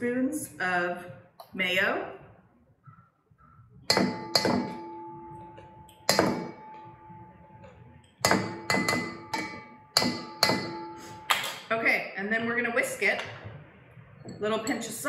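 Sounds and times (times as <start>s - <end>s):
utensil knocking on metal bowl: 3.9s - 5.0s, 6.1s - 6.9s, 8.2s - 11.0s.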